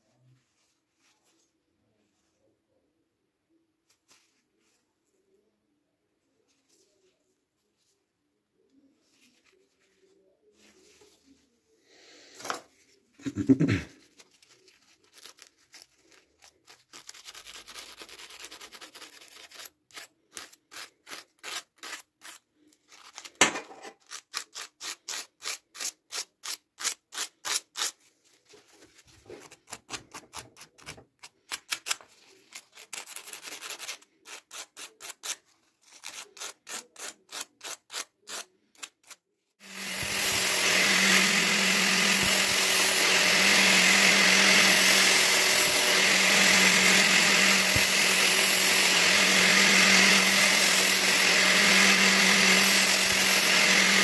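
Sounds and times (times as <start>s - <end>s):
angle grinder running: 39.6s - 54.0s.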